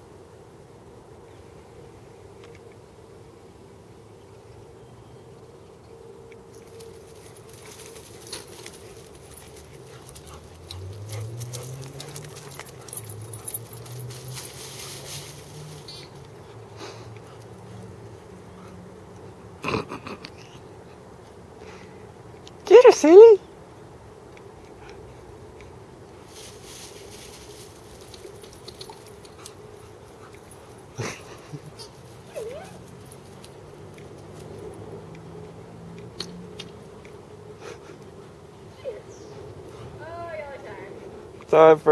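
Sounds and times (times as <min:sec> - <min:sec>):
jingling and light clicks: 0:06.5 - 0:18.1, 0:26.3 - 0:37.4
dog growling: 0:19.6 - 0:20.5
dog whining: 0:31.8 - 0:32.9
dog yelping: 0:31.8 - 0:33.0.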